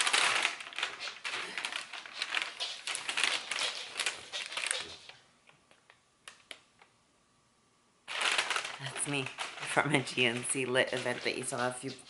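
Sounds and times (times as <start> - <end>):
paper crinkling and rustling: 0.0 - 5.2, 8.1 - 12.0.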